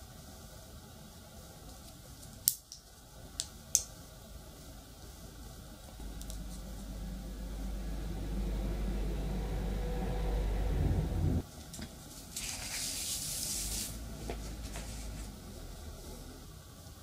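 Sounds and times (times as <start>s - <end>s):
low hum: 5.7s - 11.4s.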